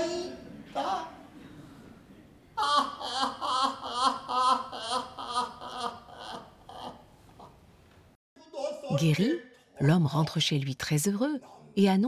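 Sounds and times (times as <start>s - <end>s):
person laughing rhythmically: 2.6s - 7.1s.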